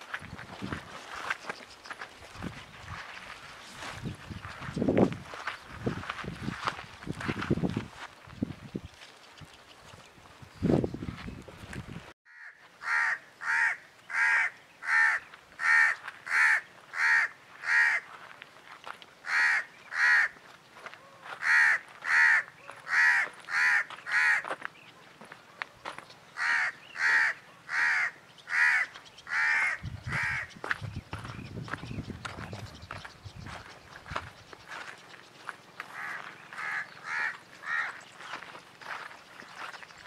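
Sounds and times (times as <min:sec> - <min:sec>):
crow cawing: 0:12.3 - 0:18.1, 0:19.2 - 0:20.4, 0:21.0 - 0:24.5, 0:26.4 - 0:30.5, 0:35.8 - 0:38.0.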